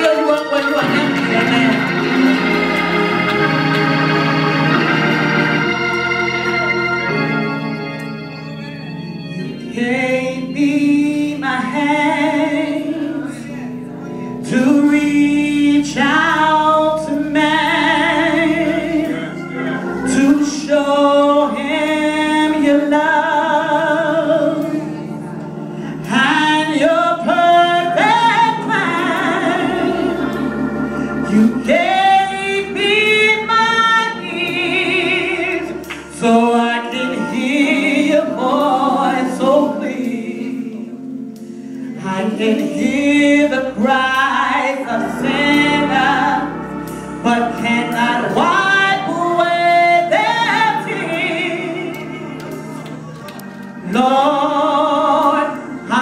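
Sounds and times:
sustained organ chords: 0:00.0 - 0:56.0
woman singing into a microphone: 0:14.4 - 0:19.4, 0:26.0 - 0:30.4, 0:42.0 - 0:46.6, 0:47.3 - 0:52.6.

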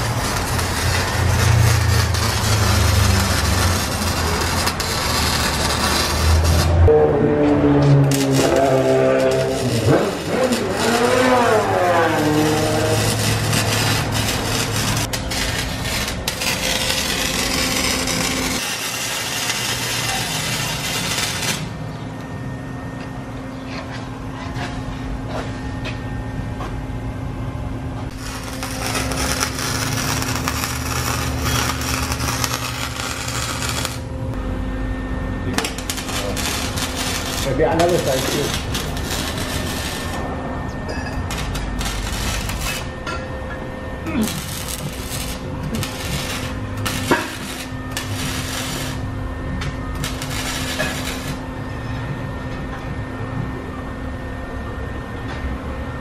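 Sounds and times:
welding arc crackling: 0:00.0 - 0:06.9, 0:07.5 - 0:21.8, 0:28.1 - 0:34.1, 0:35.5 - 0:40.3, 0:41.2 - 0:42.9, 0:44.0 - 0:51.5
steady low hum: 0:00.0 - 0:56.0.

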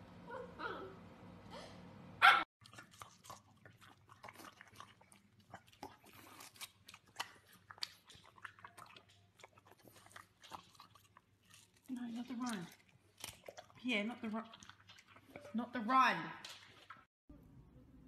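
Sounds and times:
puppy barking: 0:02.2 - 0:02.5
dog chewing watermelon: 0:02.6 - 0:17.1.

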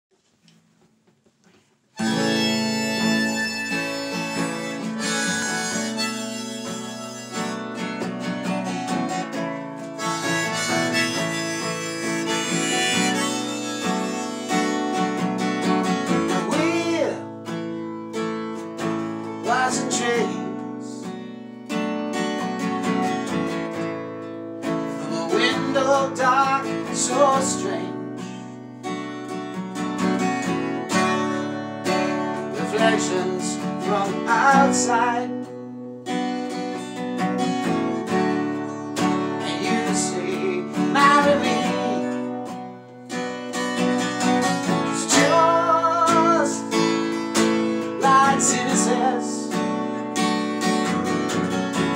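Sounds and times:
strummed acoustic guitar: 0:01.5 - 0:51.9
harmonica bending long notes: 0:02.0 - 0:16.5.

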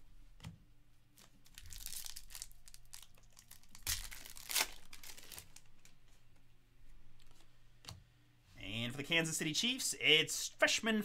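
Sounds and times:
foil wrapper tearing and crinkling: 0:01.4 - 0:05.7.

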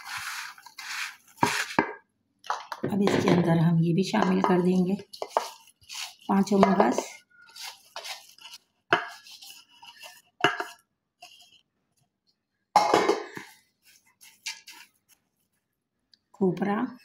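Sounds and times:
plastic spatula scraping bowls: 0:00.0 - 0:02.0, 0:04.2 - 0:11.7.

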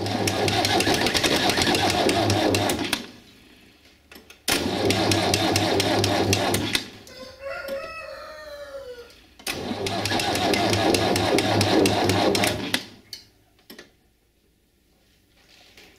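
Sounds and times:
rooster crowing: 0:07.0 - 0:09.2.

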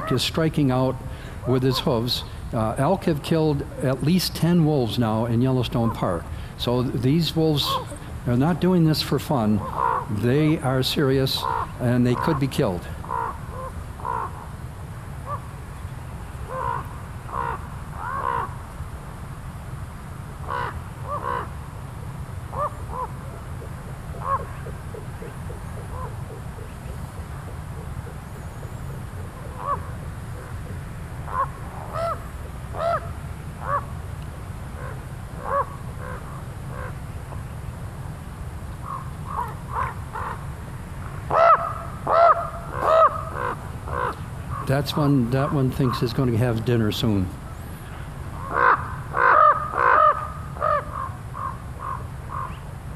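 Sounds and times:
ravens croaking caws: 0:01.0 - 0:02.4, 0:09.4 - 0:14.5, 0:16.5 - 0:18.6, 0:20.4 - 0:21.7, 0:22.5 - 0:28.2, 0:29.1 - 0:34.0, 0:34.7 - 0:37.0, 0:38.8 - 0:40.5, 0:41.3 - 0:46.5, 0:48.4 - 0:52.6.

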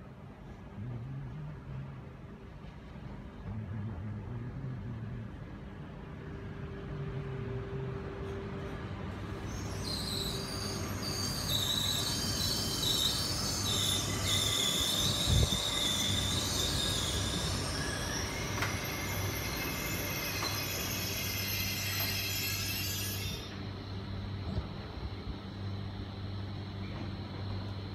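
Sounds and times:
train brake squeal: 0:08.1 - 0:24.8.

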